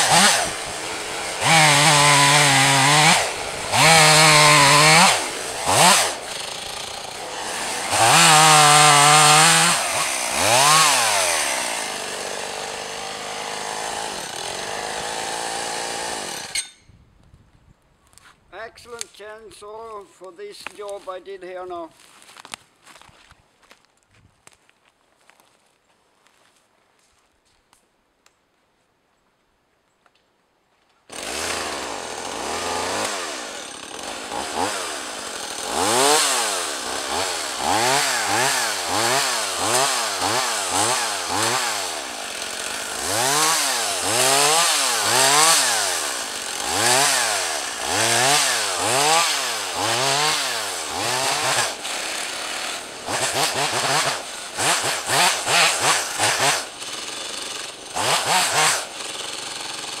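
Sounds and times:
chainsaw revving: 0.0s - 16.6s, 31.1s - 60.0s.

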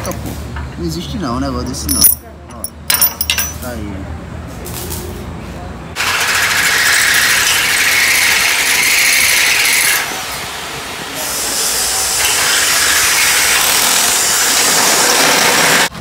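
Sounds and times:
power drill grinding into steel: 6.0s - 10.2s, 11.4s - 15.9s.

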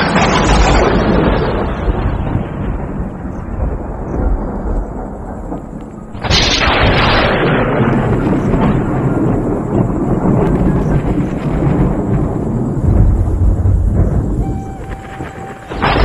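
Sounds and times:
thunder crack: 0.0s - 16.0s
thunder rumbling: 0.0s - 16.0s.

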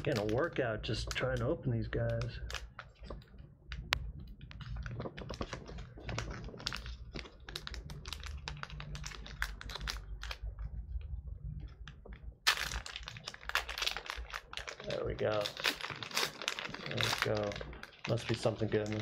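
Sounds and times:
wrapper seal ripping: 0.0s - 1.4s, 4.5s - 10.6s, 12.4s - 19.0s
wrapper crackling and crinkling: 0.0s - 11.0s, 11.6s - 19.0s.

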